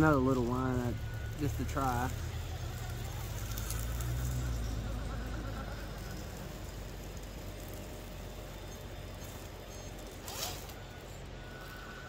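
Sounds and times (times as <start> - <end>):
electric motor humming: 0.0 - 12.0
zipper-like rasp: 10.2 - 10.8.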